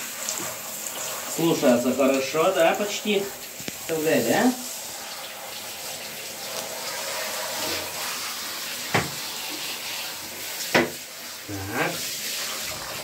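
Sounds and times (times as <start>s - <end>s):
shower spray running: 0.0s - 13.0s
sharp knocks: 8.9s - 9.2s.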